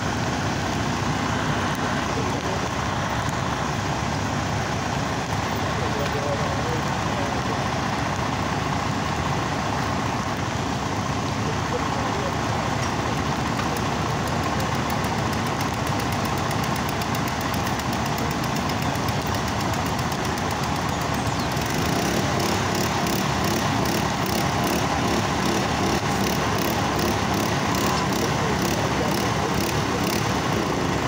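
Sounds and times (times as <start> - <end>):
engines idling: 0.0 - 31.0.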